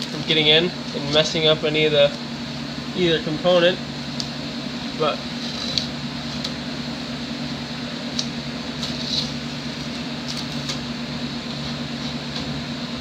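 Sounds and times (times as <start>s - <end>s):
low machine hum: 0.0s - 13.0s
masking tape peeling crackles: 5.3s - 6.6s, 8.0s - 10.9s.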